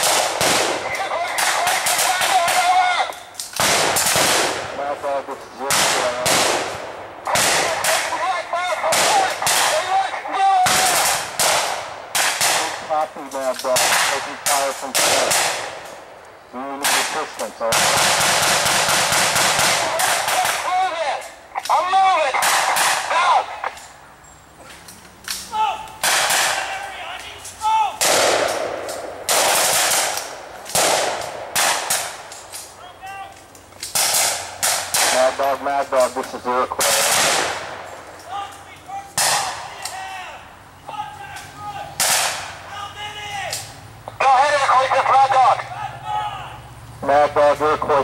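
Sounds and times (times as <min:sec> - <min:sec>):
blank gunshots: 0:00.0 - 0:21.0, 0:21.7 - 0:23.7, 0:26.0 - 0:26.9, 0:28.0 - 0:32.3, 0:33.9 - 0:38.2, 0:39.2 - 0:39.8, 0:42.0 - 0:42.6
men shouting: 0:00.8 - 0:03.3, 0:07.3 - 0:11.2, 0:19.7 - 0:23.8, 0:25.4 - 0:28.0, 0:38.2 - 0:48.0
automatic gunfire bursts: 0:16.8 - 0:20.6.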